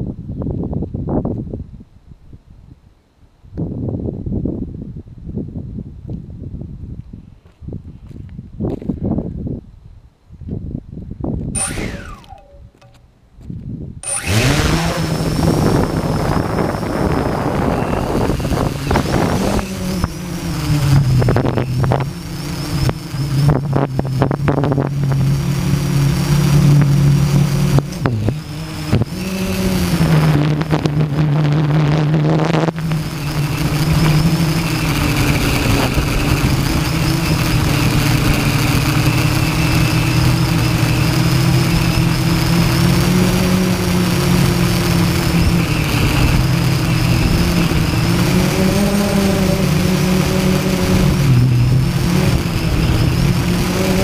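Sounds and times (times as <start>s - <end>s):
wind buffeting microphone: 0.0s - 54.0s
drone motors humming and whining: 11.6s - 13.1s, 14.0s - 54.0s.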